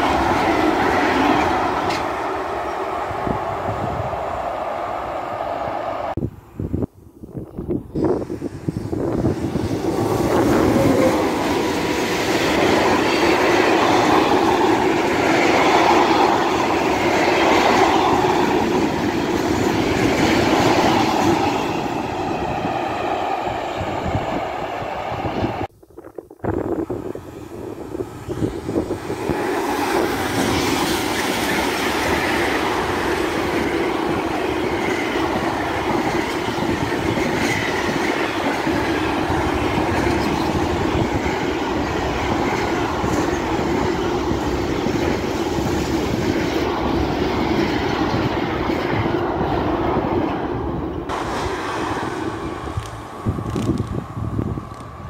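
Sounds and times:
freight train wheels on rails: 0.0 - 6.2, 7.3 - 25.7, 26.5 - 55.0.

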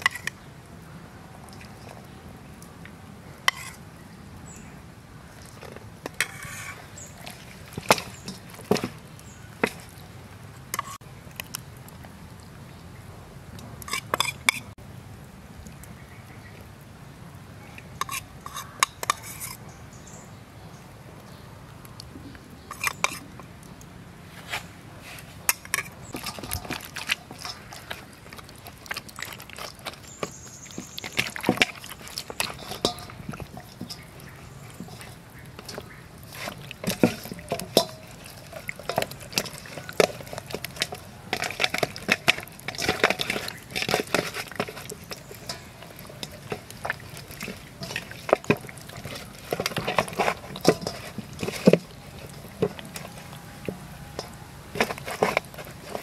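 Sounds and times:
wet squelching of raw chicken: 5.2 - 13.0, 24.5 - 56.0.

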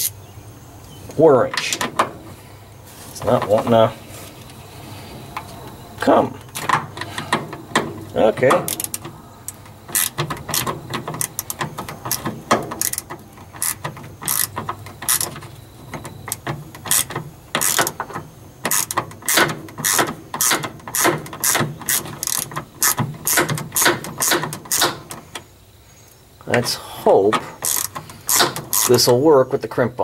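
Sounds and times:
ratchet wrench clicking: 8.5 - 25.3, 27.6 - 29.1.

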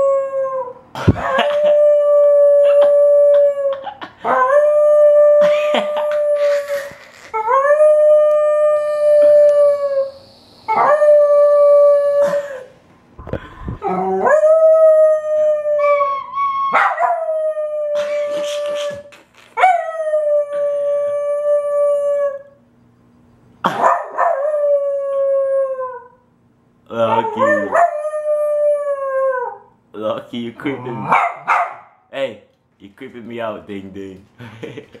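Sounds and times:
puppy howling: 0.0 - 6.7, 7.3 - 12.3, 13.8 - 22.5, 23.8 - 26.2, 27.0 - 29.7.

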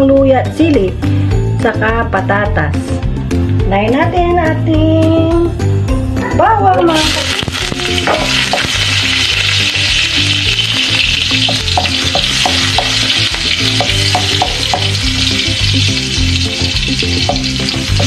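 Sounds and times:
garlic sizzling in hot oil: 6.8 - 18.0.

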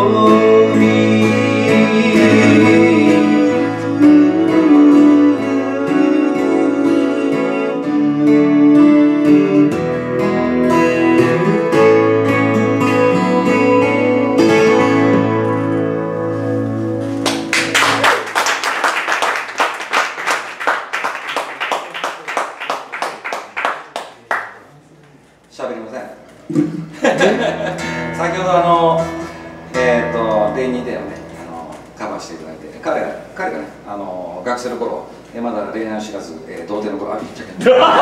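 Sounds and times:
acoustic guitars playing chords: 0.0 - 21.5, 26.4 - 33.9.

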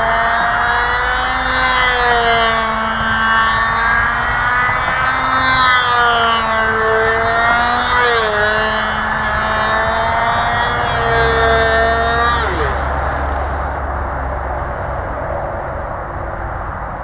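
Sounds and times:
model airplane engine buzzing: 0.0 - 17.0.

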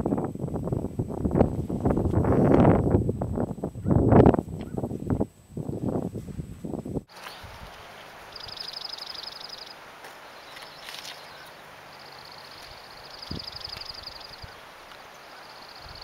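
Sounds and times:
soft steady hiss: 0.0 - 16.0
wind rumbling on microphone: 0.0 - 16.0
small bird trilling: 8.3 - 9.8.

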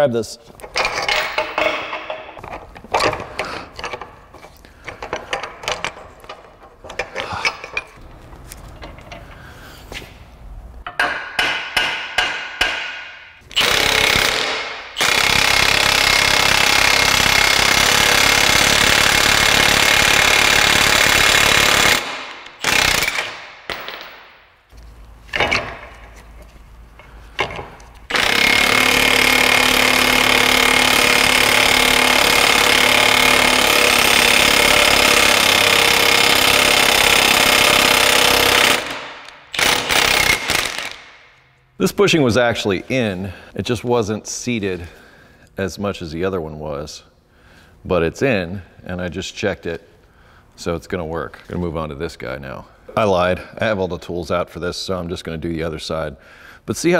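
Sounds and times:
impact wrench hammering: 0.7 - 4.1, 10.8 - 24.4, 27.4 - 41.4.

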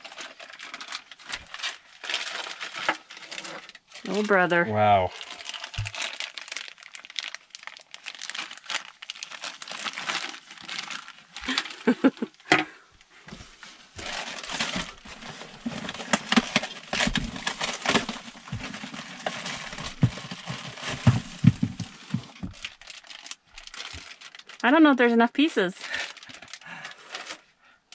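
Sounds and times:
plastic bags crinkling: 0.0 - 27.5
dull knocks: 19.6 - 22.6.

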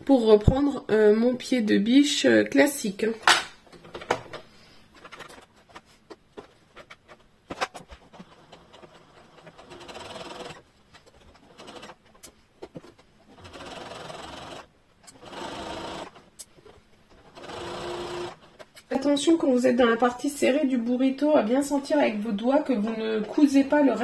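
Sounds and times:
sewing machine stitching: 8.0 - 10.6, 11.2 - 12.0, 13.3 - 16.2, 17.2 - 18.6.

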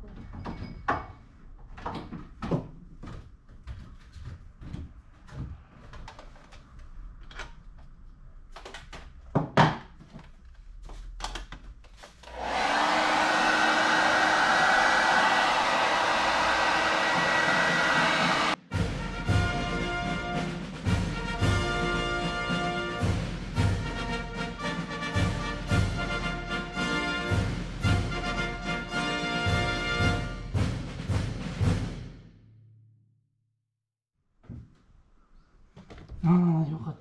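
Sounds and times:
hair dryer blowing: 12.2 - 18.6.

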